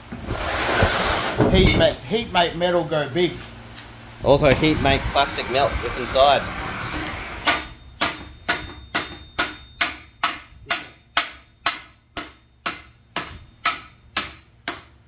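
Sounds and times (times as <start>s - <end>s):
hammer striking metal: 7.4s - 15.0s.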